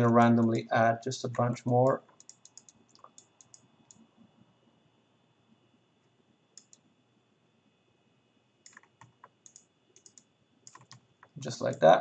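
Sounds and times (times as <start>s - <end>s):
faint computer clicks: 1.3s - 4.1s, 6.6s - 6.8s, 8.6s - 11.9s.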